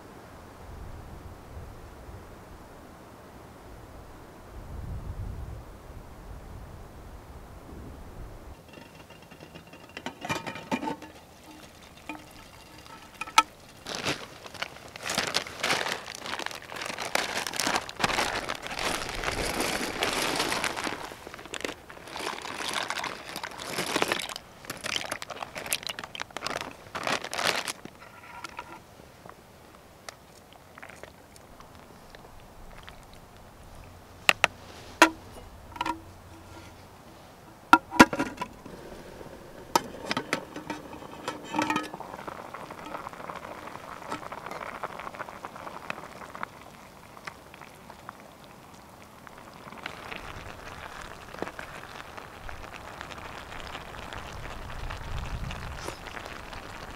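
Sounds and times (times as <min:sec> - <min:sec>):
food bubbling and crackling in pot: 0:08.5 - 0:56.9
wooden spoon stirring: 0:08.6 - 0:28.8, 0:37.8 - 0:46.4.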